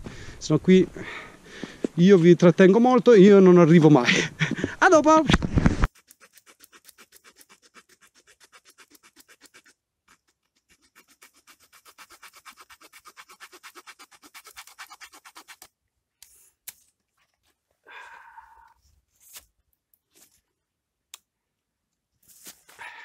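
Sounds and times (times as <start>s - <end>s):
knife scraping wood: 5.8s - 17.5s.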